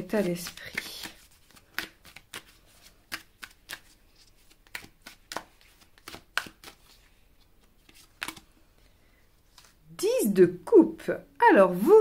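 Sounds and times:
cards snapping and tapping: 0.3s - 6.9s, 7.6s - 8.4s.

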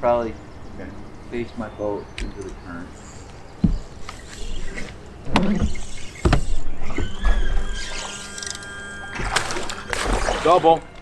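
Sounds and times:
electric motor whine: 4.0s - 11.0s.

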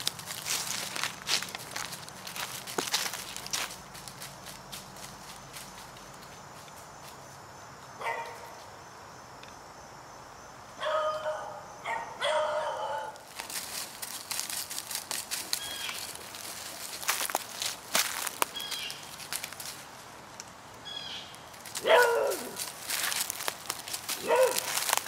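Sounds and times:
footsteps crunching dry leaves: 0.0s - 6.7s, 13.1s - 25.0s
dog barking: 8.0s - 8.5s, 10.8s - 13.2s, 21.8s - 22.6s, 24.2s - 24.7s.

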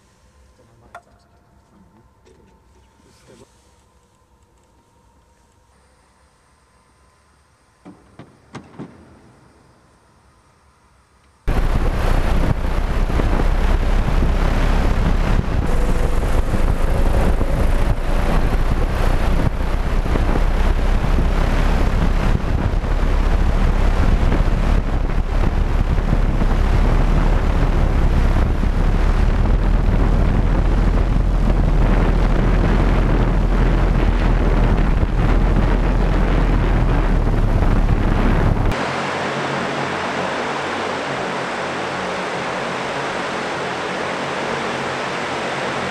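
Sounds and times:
wind buffeting microphone: 11.5s - 38.8s
electric rotors rushing: 11.5s - 42.8s.

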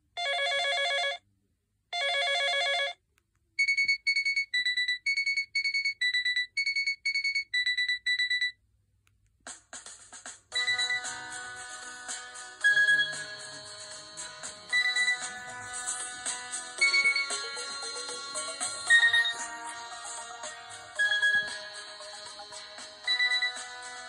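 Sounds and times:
melodic ringtone: 3.6s - 8.5s, 10.5s - 24.0s
alternating high and low beeps: 12.6s - 13.7s, 14.6s - 23.8s.

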